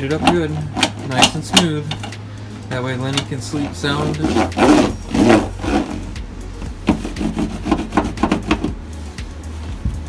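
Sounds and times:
roller scraping foil mat: 3.4s - 6.2s, 6.8s - 8.7s.

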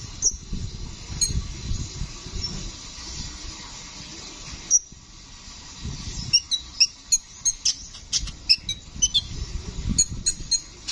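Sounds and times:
sunbird singing high chirps: 6.1s - 10.9s.

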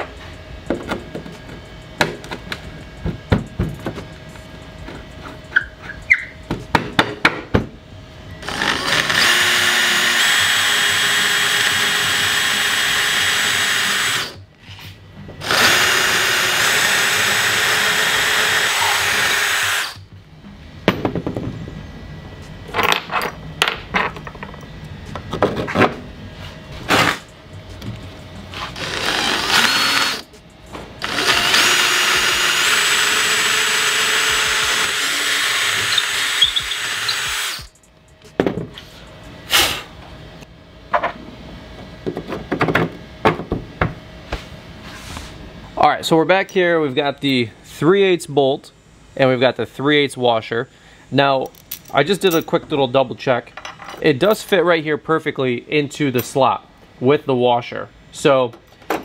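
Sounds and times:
cordless drill boring through plywood: 8.4s - 14.4s, 15.4s - 20.0s, 28.8s - 30.2s, 31.0s - 37.7s.

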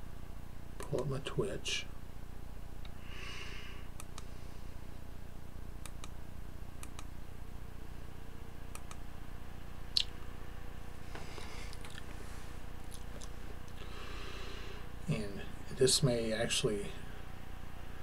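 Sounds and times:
steady low hum: 0.0s - 18.0s
computer mouse clicking: 5.8s - 6.2s, 6.8s - 7.1s, 8.7s - 9.0s.

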